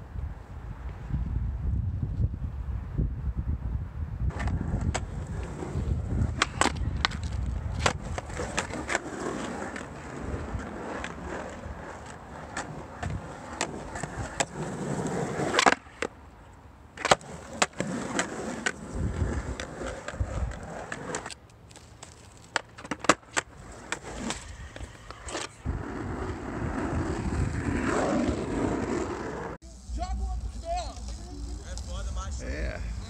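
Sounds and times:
skateboard wheels rolling on asphalt: 0.0 - 33.0
skateboard clacking on ground: 4.3 - 16.2, 16.9 - 25.7.

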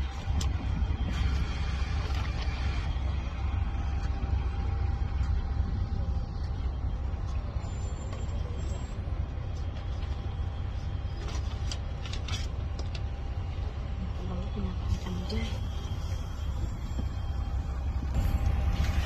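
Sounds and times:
bus engine and road rumble: 0.0 - 19.0.

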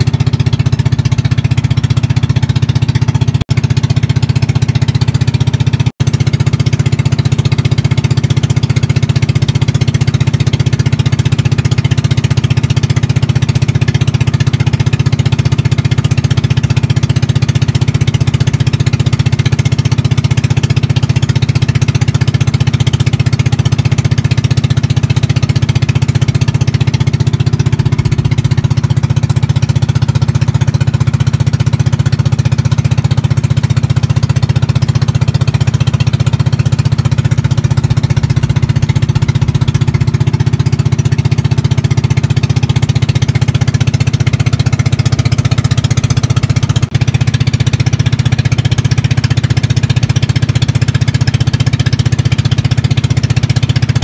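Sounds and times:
boat engine chugging: 0.0 - 54.0.

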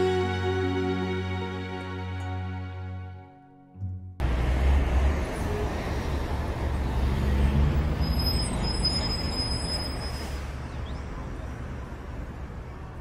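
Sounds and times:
traffic engines and road rumble: 4.2 - 13.0.

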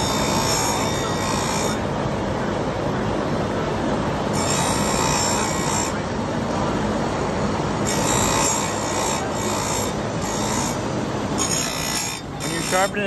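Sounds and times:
electric chain grinder running: 0.0 - 1.8, 7.8 - 13.0
high grinding hiss: 7.9 - 13.0.

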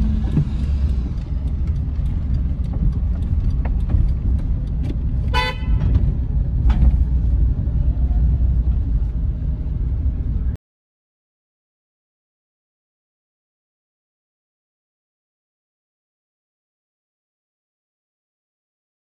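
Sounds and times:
car engine rumble and road noise: 0.0 - 10.6
short car horn toot: 5.3 - 5.8.

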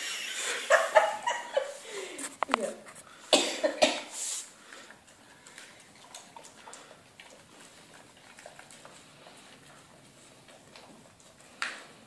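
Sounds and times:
dogs licking food from foil tray: 4.2 - 12.0.

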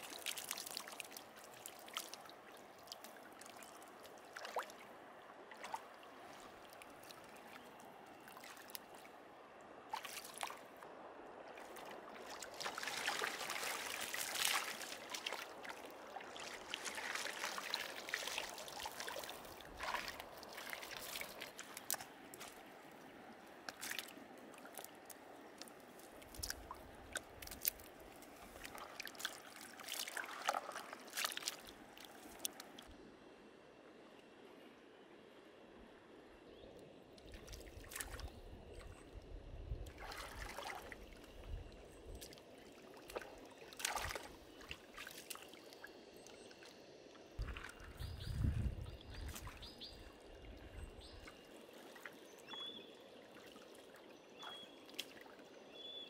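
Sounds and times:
water trickling: 0.0 - 9.2, 11.5 - 32.9
stream water sloshing and splashing: 0.0 - 56.0.

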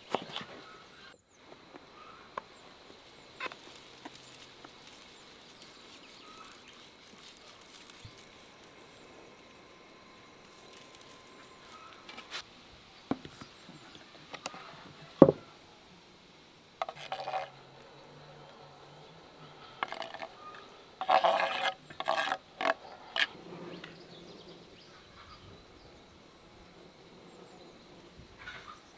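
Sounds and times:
scraping off cutting board: 19.8 - 23.8.

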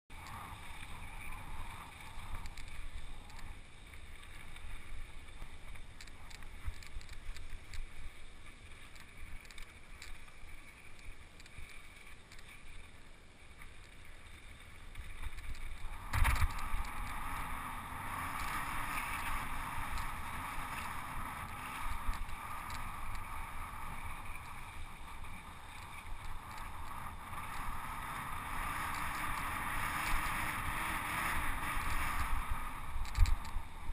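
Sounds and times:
bike rolling low rumble: 0.1 - 33.9
bike knocks on rough dirt: 16.1 - 16.7.

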